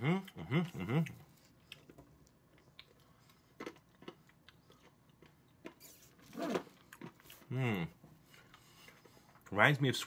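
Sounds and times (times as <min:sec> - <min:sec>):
chewing candy mouth clicks: 0:00.2 - 0:05.9.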